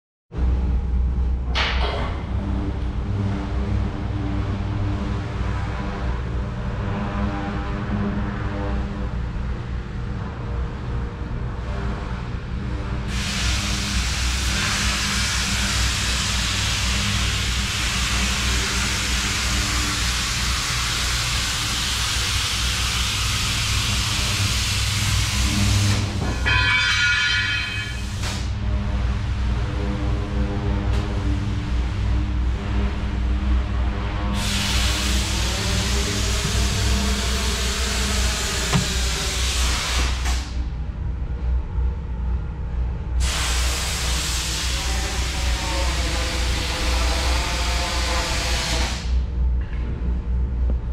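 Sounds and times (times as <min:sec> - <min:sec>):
low hum: 0:00.3 - 0:13.3, 0:27.4 - 0:43.2
loud rushing hiss: 0:13.1 - 0:26.2, 0:34.4 - 0:40.6, 0:43.2 - 0:49.2.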